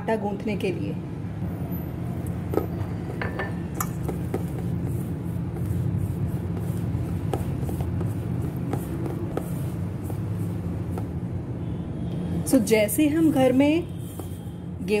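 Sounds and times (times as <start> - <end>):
steady low hum: 1.0 - 14.9
hand mixing dough in a bowl: 3.8 - 11.4, 13.0 - 15.0.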